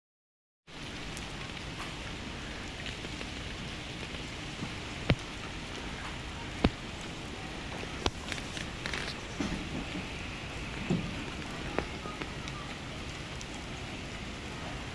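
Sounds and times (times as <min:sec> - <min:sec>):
rain falling on pavement: 0:00.7 - 0:14.9.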